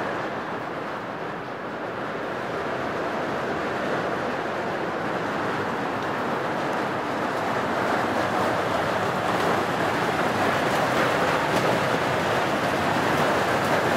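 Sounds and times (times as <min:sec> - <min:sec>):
steady rain falling: 0:00.0 - 0:13.9.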